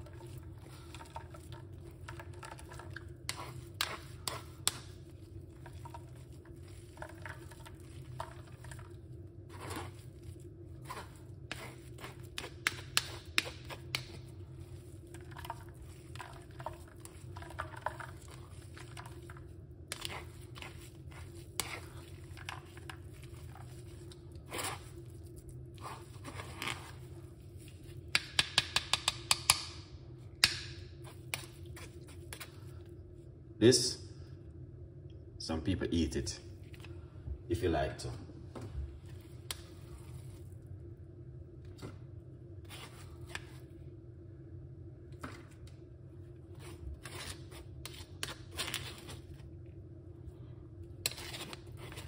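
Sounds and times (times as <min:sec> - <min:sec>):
low steady hum: 0:00.0 - 0:52.0
spoon scraping through sieve: 0:09.5 - 0:13.9, 0:14.5 - 0:25.2, 0:25.8 - 0:27.9.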